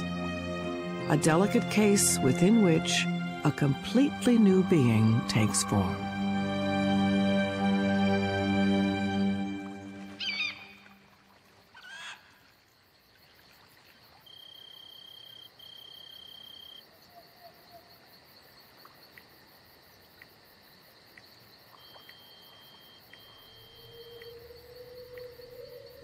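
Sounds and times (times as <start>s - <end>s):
crickets trilling: 9.6s - 26.0s.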